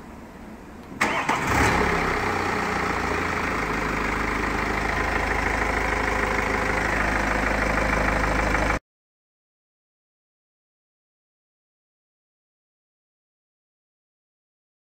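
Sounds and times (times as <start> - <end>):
car engine starting and idling: 0.7 - 8.8.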